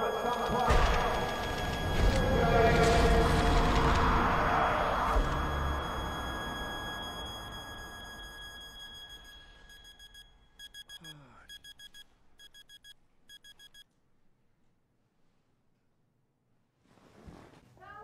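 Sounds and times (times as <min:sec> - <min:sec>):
alarm clock beeping: 0:00.0 - 0:13.8.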